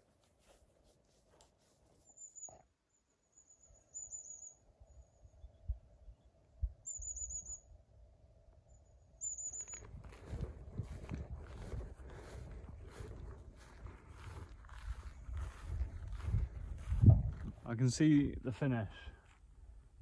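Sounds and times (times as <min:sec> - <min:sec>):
songbird singing high phrases: 0:06.8 - 0:07.8
wind rumbling on microphone: 0:09.6 - 0:18.4.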